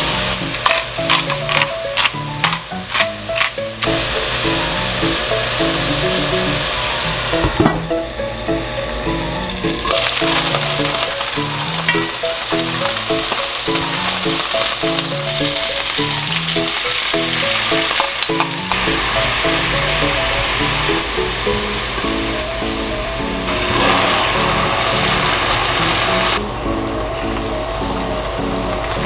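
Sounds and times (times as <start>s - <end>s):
chicken sizzling in a pan: 0.0s - 7.5s, 9.5s - 26.4s
light background music: 0.0s - 29.0s
tongs clicking: 0.6s - 4.0s, 17.7s - 18.8s.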